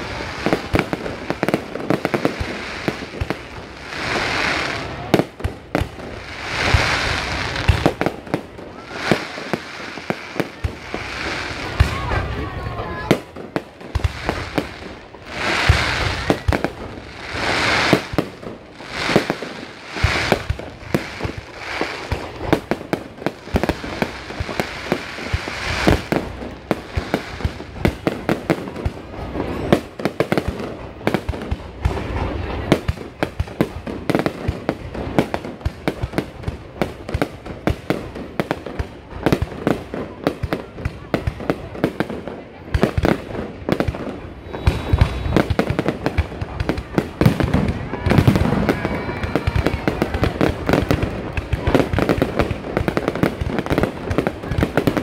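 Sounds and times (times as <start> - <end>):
fireworks bursts and bangs: 0.0 - 55.0
fireworks crackling: 0.0 - 55.0.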